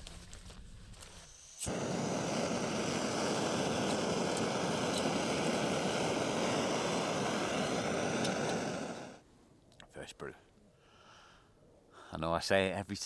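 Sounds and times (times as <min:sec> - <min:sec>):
gas burner hissing: 0:01.2 - 0:09.2
stove ignition click: 0:01.6 - 0:09.2.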